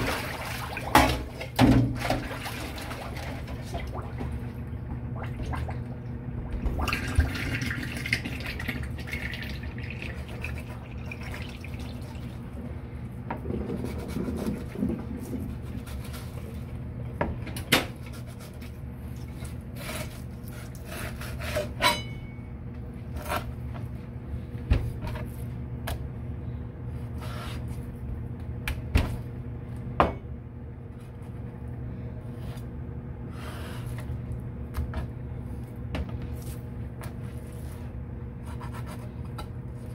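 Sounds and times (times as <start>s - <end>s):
steady low hum: 0.0s - 39.9s
knife cutting fish on a board: 19.8s - 22.0s.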